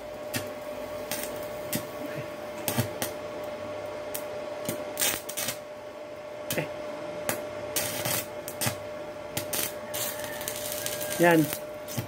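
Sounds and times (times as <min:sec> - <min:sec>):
arc welding crackling and popping: 0:00.0 - 0:12.0
steady welder tone: 0:00.0 - 0:12.0.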